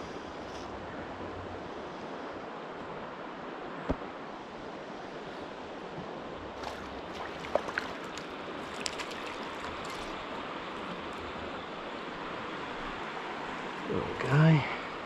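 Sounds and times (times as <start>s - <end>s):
creek water flowing: 0.0s - 15.0s.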